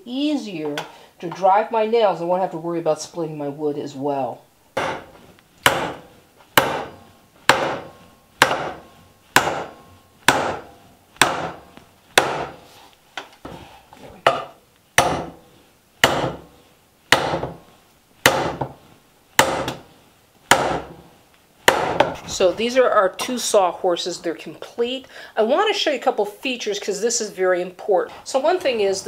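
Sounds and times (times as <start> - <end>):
hammer striking nail into wood: 4.8 - 12.6, 14.3 - 15.4, 16.0 - 16.5, 17.1 - 17.6, 18.2 - 18.8, 19.4 - 19.8, 20.5 - 21.0, 21.7 - 22.2.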